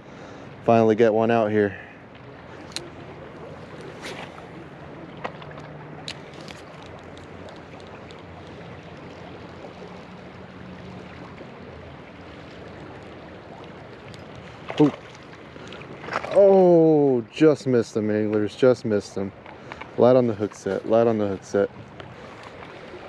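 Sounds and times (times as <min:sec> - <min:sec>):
river current rushing: 0:18.9 - 0:23.0.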